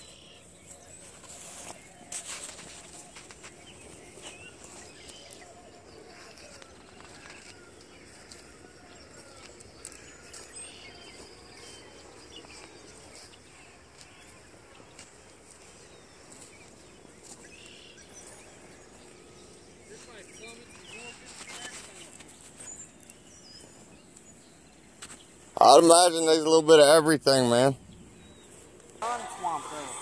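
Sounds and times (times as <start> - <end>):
birds chirping: 0.0 - 30.0
footsteps crunching over soil: 0.0 - 30.0.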